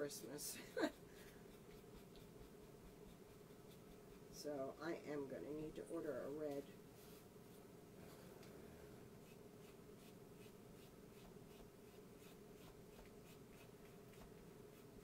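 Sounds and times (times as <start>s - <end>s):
steady low hum: 0.0s - 15.0s
paint marker scratching on wood: 0.9s - 4.4s, 9.2s - 15.0s.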